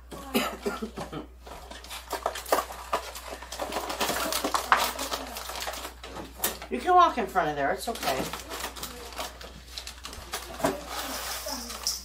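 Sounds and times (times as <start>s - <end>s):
paper packet rustling: 1.4s - 12.0s.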